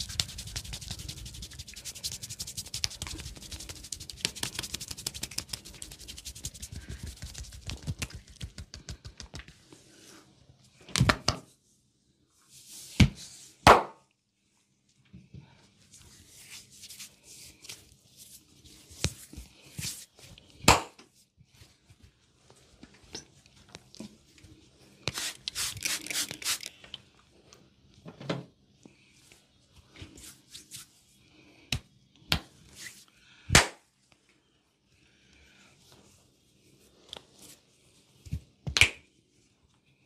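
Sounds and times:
hands rubbing skin: 0.0 - 9.8, 15.9 - 20.3, 25.1 - 26.7.

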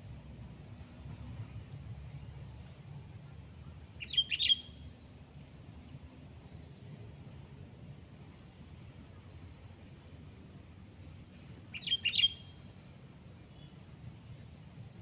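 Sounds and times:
bird chirping: 4.0 - 4.8, 11.7 - 12.6.

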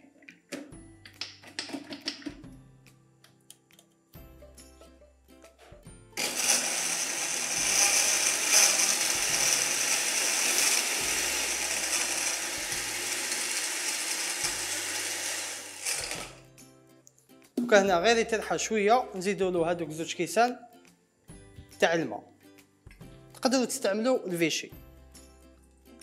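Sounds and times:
blender crushing ice: 6.2 - 16.4.

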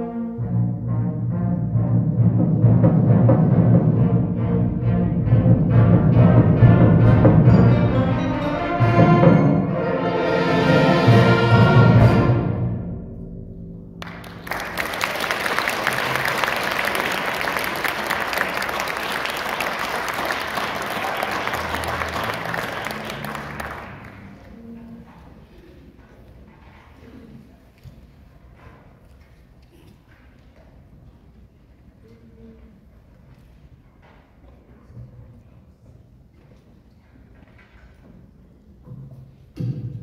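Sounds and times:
symphonic band playing: 0.0 - 24.6
audience applauding: 14.0 - 24.6.

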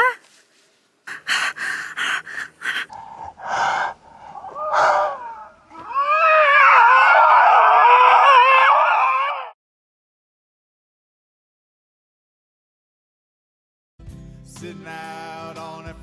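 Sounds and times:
animals yipping: 4.3 - 9.6
chorus of wavering howls: 4.3 - 9.6.

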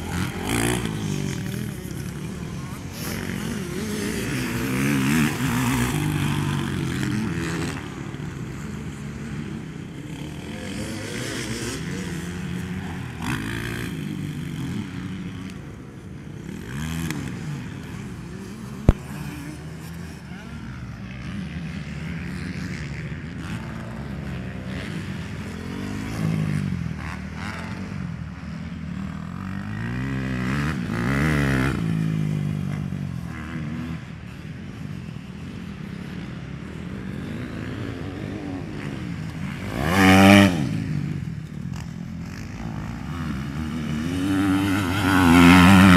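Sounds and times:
motocross bike engines revving: 0.0 - 45.9.

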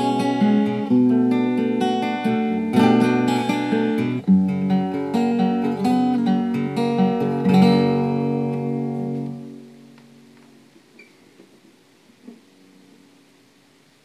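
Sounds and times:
acoustic guitar picked notes and chords: 0.0 - 14.0.

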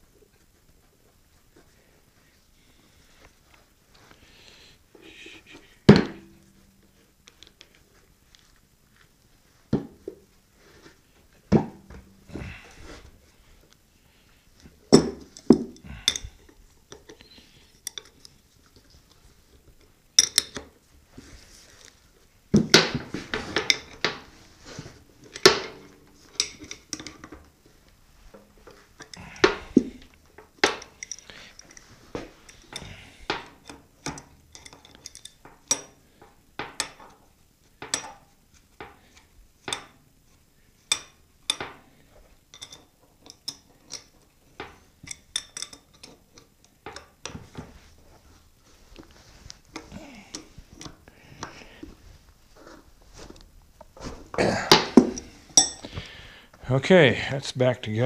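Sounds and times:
metal parts clinking: 25.2 - 27.3, 30.6 - 31.9, 34.1 - 36.0.

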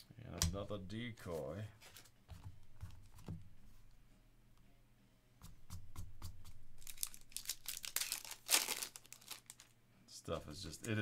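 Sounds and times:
foil wrapper tearing and crinkling: 6.8 - 9.7.

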